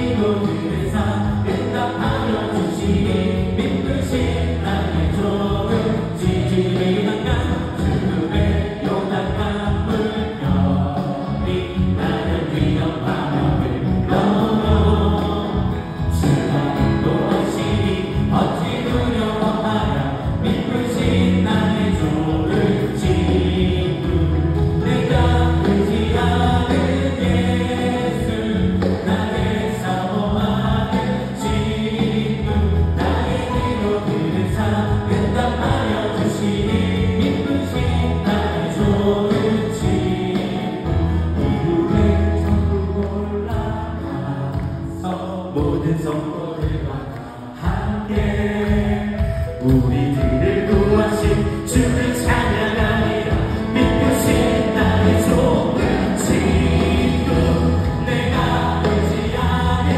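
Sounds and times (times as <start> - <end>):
band playing with steady beat: 0.0 - 45.0, 45.6 - 59.9
singers singing together: 0.0 - 59.9.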